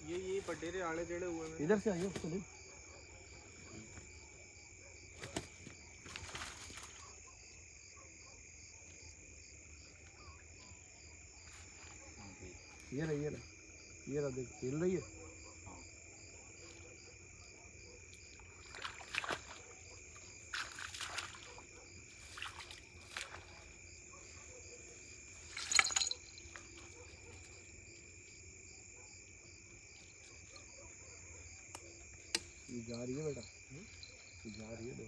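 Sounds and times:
crickets chirping: 0.0 - 35.0
water splashing from wading: 18.4 - 23.7.

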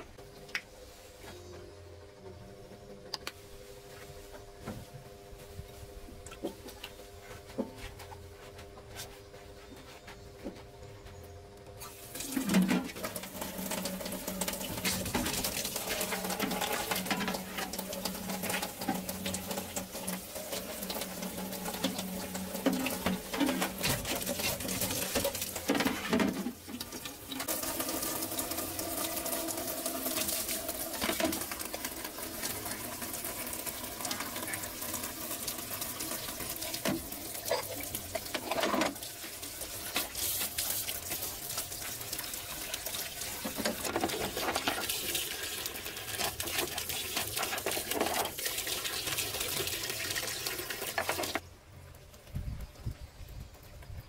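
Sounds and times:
tap water splashing into sink: 12.2 - 39.1, 42.6 - 51.4.

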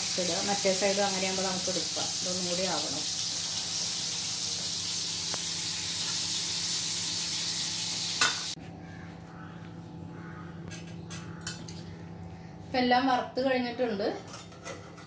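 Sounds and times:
food sizzling in hot oil: 0.0 - 8.6.

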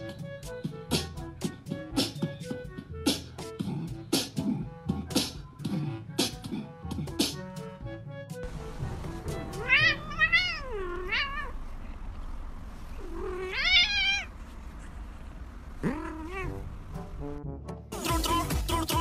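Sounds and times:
cat meowing: 9.6 - 11.6, 13.0 - 14.3, 15.8 - 16.6.

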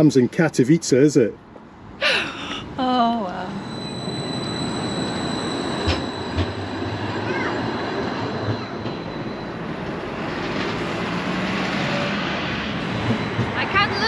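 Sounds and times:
high steady whine: 2.2 - 7.2
steel wheels rumbling on rail: 2.7 - 14.0.

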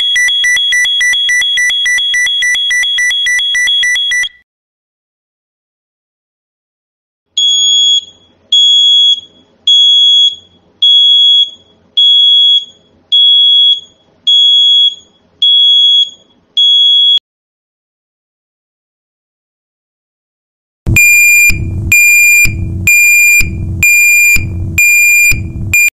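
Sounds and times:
reversing alarm beeps: 0.0 - 4.4, 7.4 - 17.2, 20.9 - 25.9.

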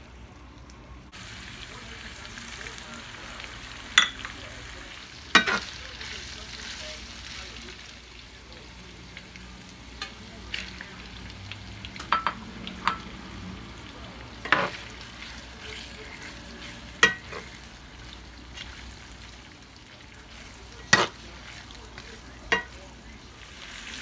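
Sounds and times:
pork sizzling in a skillet: 0.0 - 24.0
utensil clinking against pan: 17.0 - 17.5, 22.5 - 22.8.

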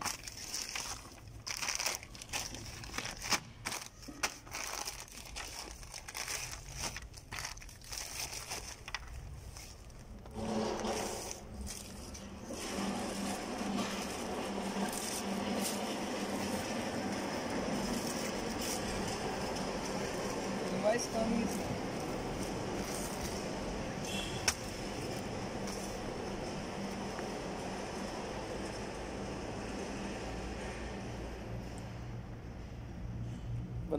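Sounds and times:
plastic packaging crinkling and tearing: 0.0 - 23.7
steady mechanical hum: 0.0 - 33.9.

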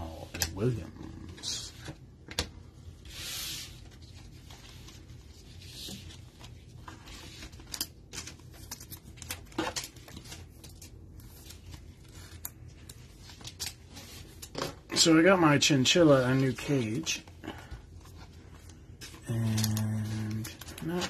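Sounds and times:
cards brushing and sliding: 2.9 - 7.8.

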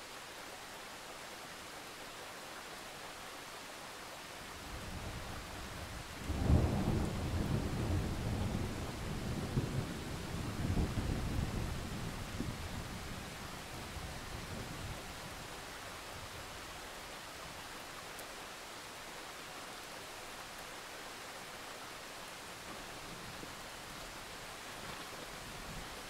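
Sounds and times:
heavy rain hissing: 0.0 - 26.0
low rumble of thunder: 4.7 - 15.5.

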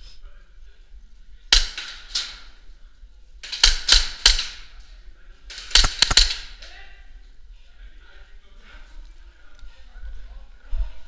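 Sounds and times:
airsoft pistol shots echoing: 5.6 - 6.6.

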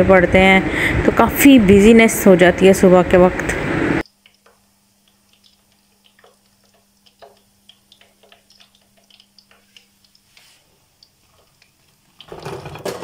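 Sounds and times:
faint steady hum: 0.0 - 12.3
oil dripping into pan: 4.0 - 12.8
frying oil crackling: 4.0 - 13.0.

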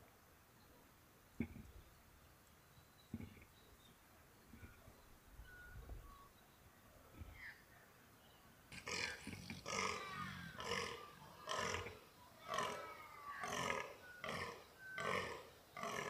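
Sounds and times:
deer croaking: 8.7 - 16.0.

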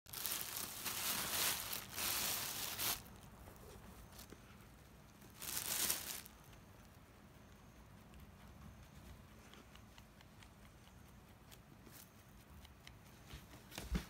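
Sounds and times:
plastic bag crinkling: 0.1 - 3.3, 5.2 - 6.4.

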